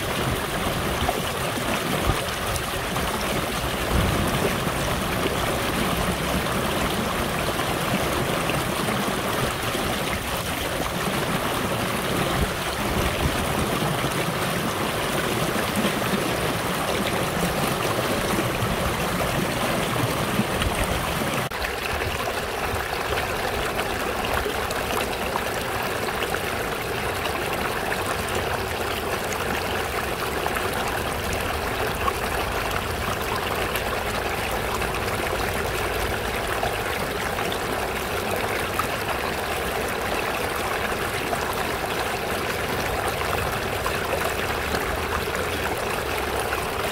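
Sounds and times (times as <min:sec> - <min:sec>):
water splashing over a rock: 0:00.0 - 0:27.3
stream running over pebbles: 0:00.0 - 0:46.9.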